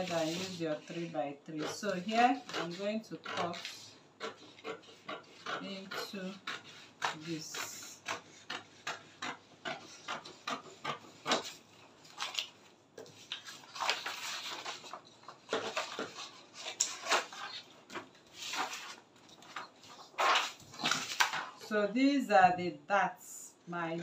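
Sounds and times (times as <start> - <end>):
paper rustling and crinkling: 0.0 - 1.1, 11.3 - 21.6
scissors snipping paper: 0.0 - 21.5.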